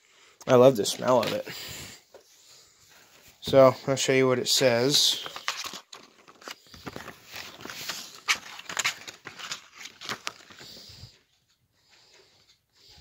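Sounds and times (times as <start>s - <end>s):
plastic packaging crinkling: 4.9s - 10.8s.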